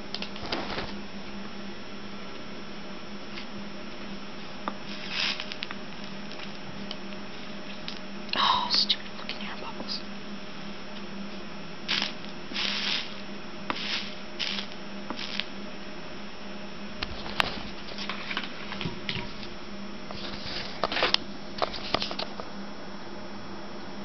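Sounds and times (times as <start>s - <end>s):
soldering iron hissing: 4.1s - 7.7s, 11.8s - 16.2s.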